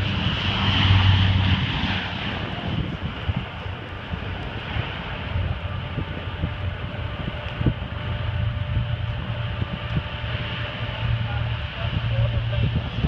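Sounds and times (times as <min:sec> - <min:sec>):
distant aircraft engines droning: 0:00.0 - 0:13.0
thin held whine: 0:02.8 - 0:13.0.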